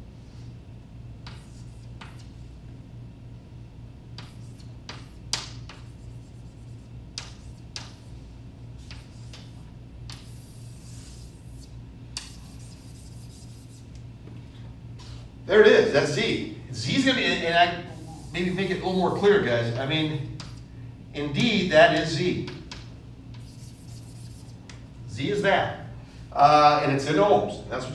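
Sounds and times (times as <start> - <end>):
steady low hum: 0.0 - 27.9
chalk tapping on a blackboard: 1.2 - 2.4, 4.2 - 8.2, 8.8 - 14.0, 21.9 - 24.8.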